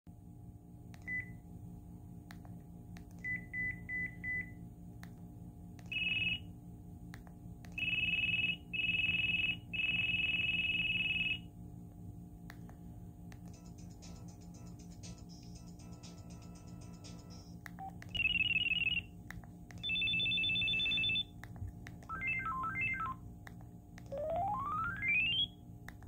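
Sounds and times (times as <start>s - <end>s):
phone alert beeps: 19.8s - 21.3s, 24.1s - 25.5s.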